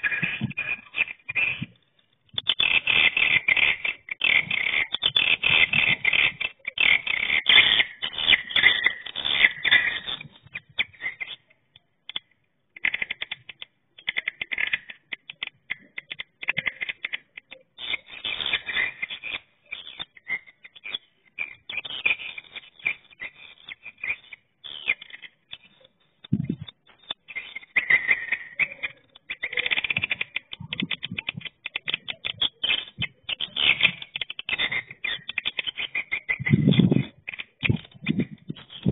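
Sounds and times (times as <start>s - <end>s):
bird clicks and chirps from speaker: 0.0s - 11.5s, 12.1s - 38.9s
swiftlets twittering: 0.0s - 11.5s, 12.2s - 38.9s.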